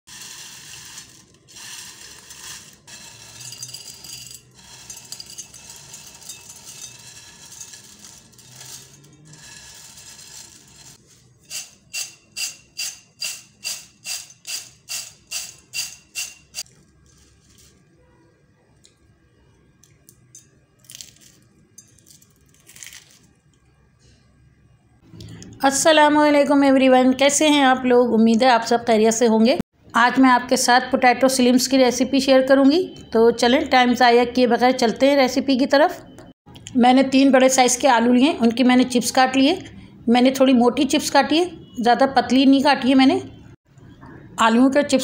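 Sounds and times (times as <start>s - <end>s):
potato straws rattling in a bowl: 0.1s - 17.8s.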